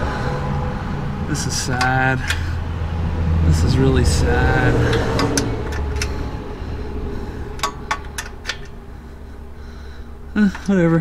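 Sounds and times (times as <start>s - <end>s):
wrench clicking on metal: 4.9s - 6.2s, 7.6s - 8.8s.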